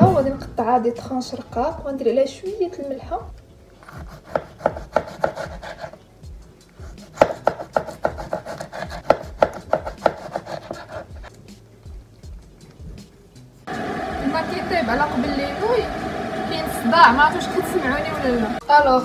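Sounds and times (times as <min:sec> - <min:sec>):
knife tapping on cutting board: 0:07.2 - 0:11.0.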